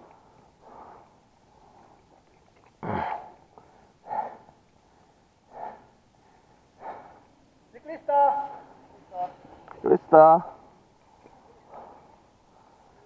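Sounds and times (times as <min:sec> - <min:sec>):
heavy breathing: 0:00.0 - 0:07.5, 0:10.5 - 0:13.0.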